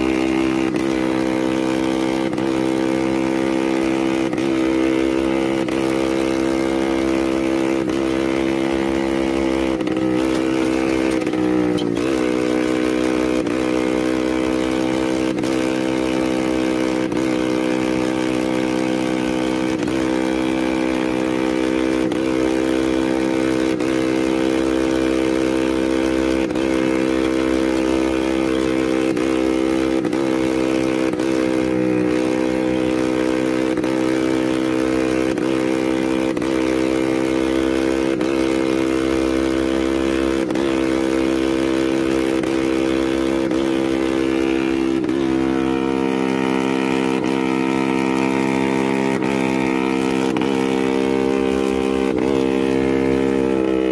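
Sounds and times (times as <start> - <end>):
scooter engine idling: 0.0 - 25.2.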